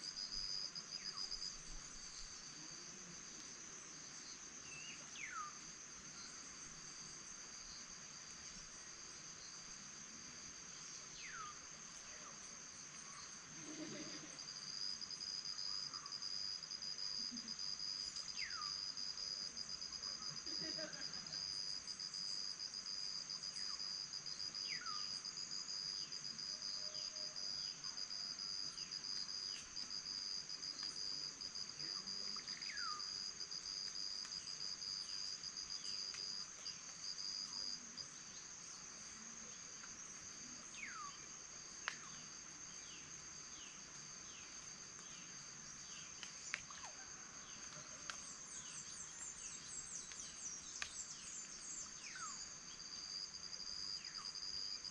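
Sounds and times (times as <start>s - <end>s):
insects trilling: 0.0s - 54.9s.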